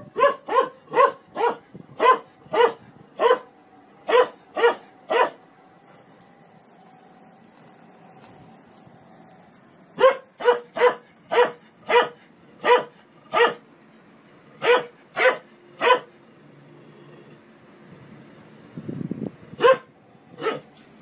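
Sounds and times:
dog barking: 0.0s - 3.5s, 4.1s - 5.4s, 10.0s - 13.6s, 14.6s - 16.1s, 19.6s - 20.7s.

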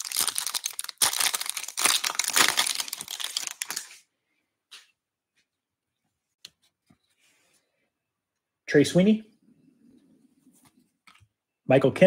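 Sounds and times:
plastic wrapper crinkling: 0.0s - 4.0s.

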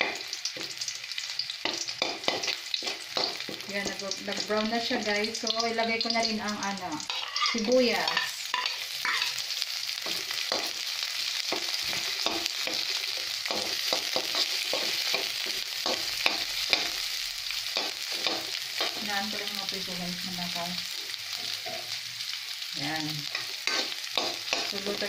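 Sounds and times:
onion sizzling in oil: 0.0s - 25.0s
metal spoon scraping a pan: 1.6s - 4.6s, 7.0s - 9.4s, 11.4s - 17.0s, 17.6s - 19.4s, 23.2s - 25.0s.

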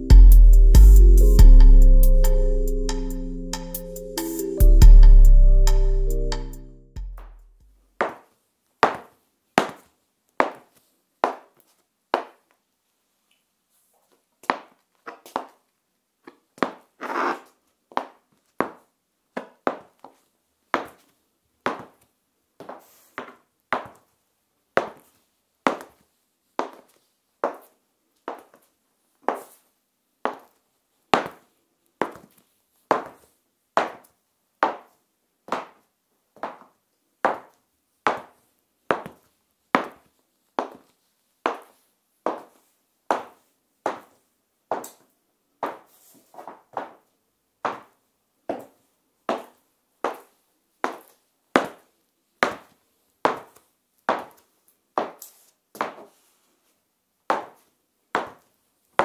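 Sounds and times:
high heels clicking on tiled floor: 7.0s - 12.5s, 16.2s - 20.2s, 20.8s - 21.1s, 21.7s - 24.1s, 24.8s - 26.0s, 30.3s - 30.6s, 31.2s - 35.8s, 36.4s - 40.9s, 41.5s - 45.0s, 45.6s - 56.1s, 57.3s - 59.0s.

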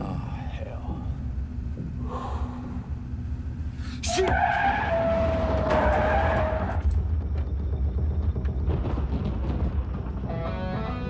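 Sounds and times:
moving car rumble: 0.0s - 11.0s
car tyres screeching: 4.0s - 7.1s.

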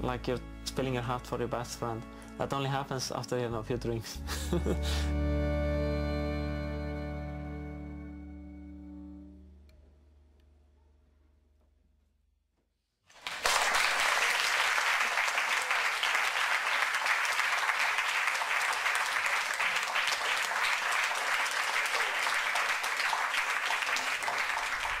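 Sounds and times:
audience applauding: 13.1s - 25.0s.

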